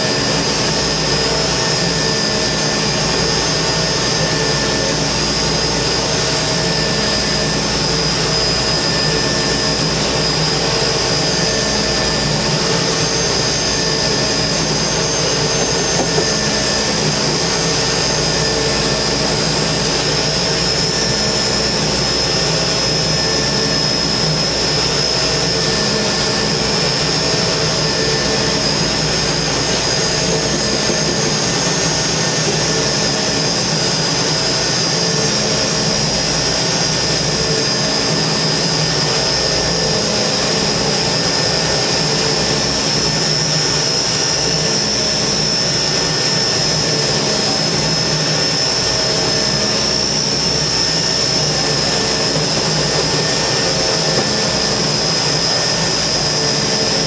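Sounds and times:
concrete plant machinery drone: 0:00.0 - 0:57.0
high machine whine: 0:00.0 - 0:57.0.

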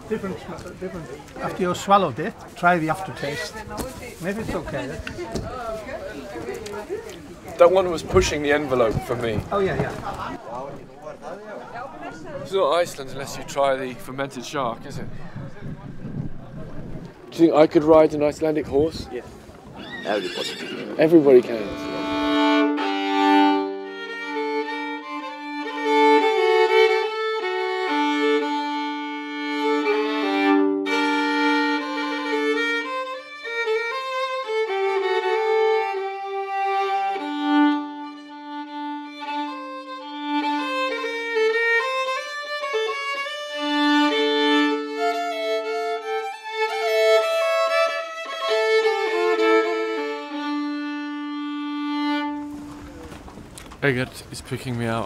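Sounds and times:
slow fiddle tune: 0:21.2 - 0:53.2.

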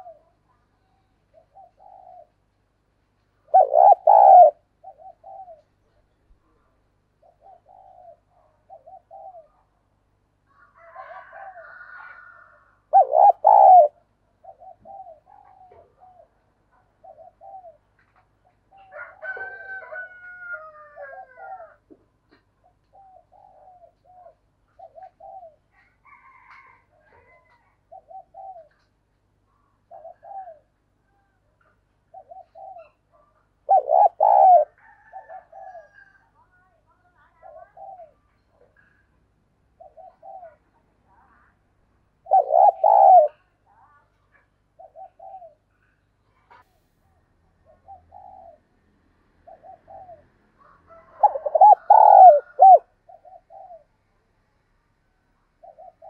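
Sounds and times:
dove cooing: 0:00.0 - 0:00.6, 0:01.3 - 0:02.4, 0:03.4 - 0:06.1, 0:07.2 - 0:09.8, 0:10.6 - 0:18.0, 0:18.7 - 0:29.0, 0:29.6 - 0:31.4, 0:32.0 - 0:36.3, 0:37.2 - 0:39.0, 0:39.8 - 0:41.4, 0:42.2 - 0:43.6, 0:44.8 - 0:46.6, 0:47.6 - 0:48.6, 0:49.4 - 0:54.0, 0:55.6 - 0:56.0.

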